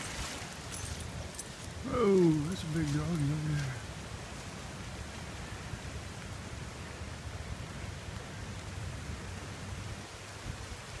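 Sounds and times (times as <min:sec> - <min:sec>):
creek rushing: 0:00.0 - 0:11.0.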